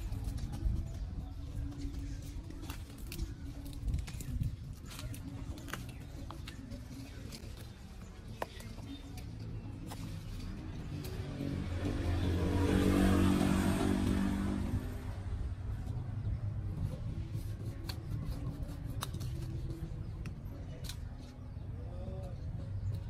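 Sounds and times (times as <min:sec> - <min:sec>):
vehicle engine passing by: 0:10.4 - 0:16.4.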